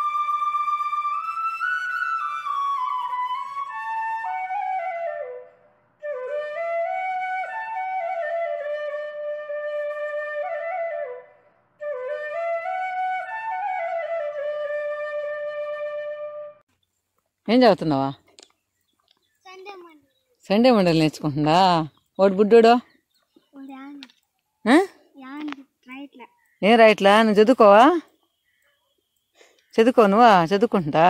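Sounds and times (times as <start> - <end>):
solo flute melody: 0.0 - 16.6.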